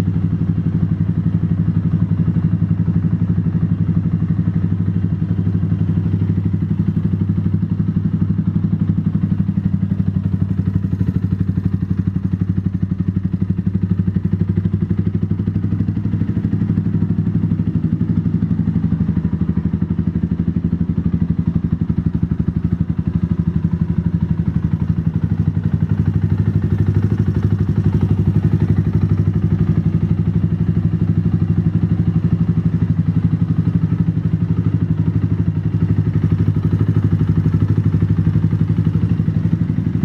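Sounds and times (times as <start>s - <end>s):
motorcycle engine idling: 0.0s - 40.0s.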